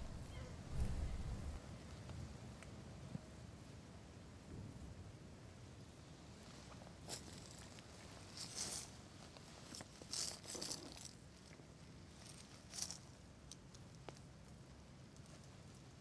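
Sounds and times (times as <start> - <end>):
low steady hum: 0.0 - 1.7
faint rustling and crackling: 0.0 - 3.8, 6.0 - 16.0.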